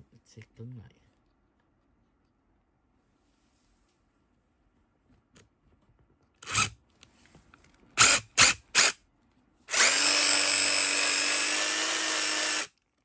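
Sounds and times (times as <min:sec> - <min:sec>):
cordless impact driver whirring: 0:06.4 - 0:06.8, 0:08.0 - 0:09.0, 0:09.7 - 0:12.7.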